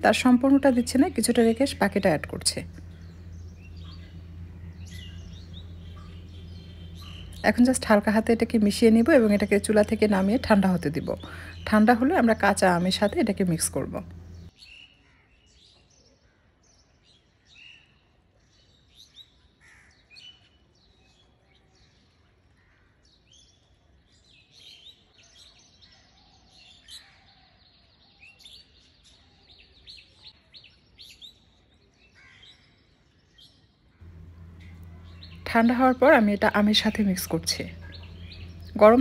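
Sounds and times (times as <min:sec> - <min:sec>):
birds chirping faintly: 0:00.0 - 0:14.6, 0:34.0 - 0:39.0.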